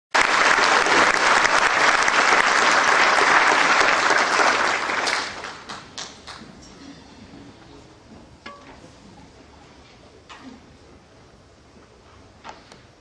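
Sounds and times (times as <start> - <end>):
audience applauding: 0.2 - 6.5.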